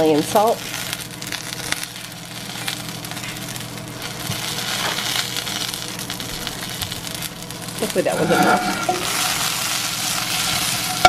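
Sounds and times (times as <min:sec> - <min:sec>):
peppers sizzling in frying pan: 0:00.0 - 0:11.0
low hum: 0:08.0 - 0:09.6.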